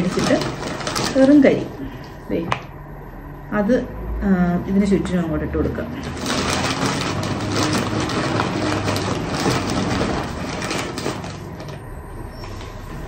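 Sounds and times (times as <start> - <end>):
charcoal lumps clinking and crunching: 0.0 - 1.7, 6.0 - 12.9.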